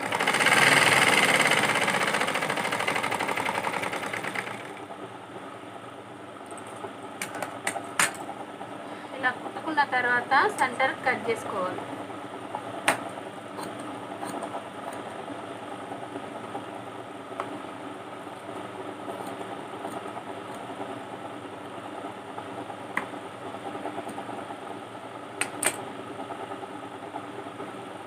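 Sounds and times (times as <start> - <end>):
steady machine hum: 0.0 - 28.0
scissors cutting cloth: 13.6 - 15.0.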